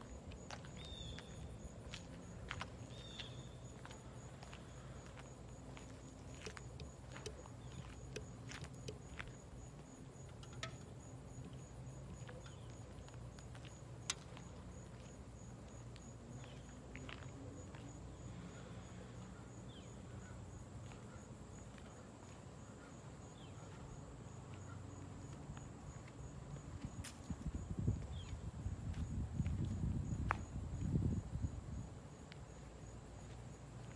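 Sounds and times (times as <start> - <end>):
faint high chirp: 2.9 - 3.6.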